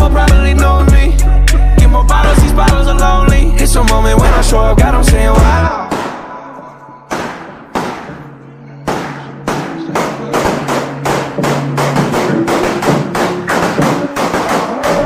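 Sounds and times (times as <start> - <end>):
sharp percussive hits: 7.1 - 8.3, 8.9 - 15.0.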